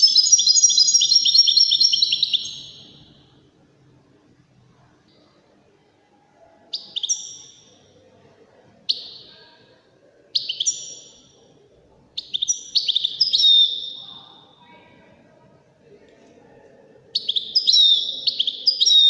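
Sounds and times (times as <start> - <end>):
finch twittering song: 0.0 - 3.2, 6.7 - 7.8, 10.4 - 11.4, 12.2 - 14.5, 17.2 - 19.0.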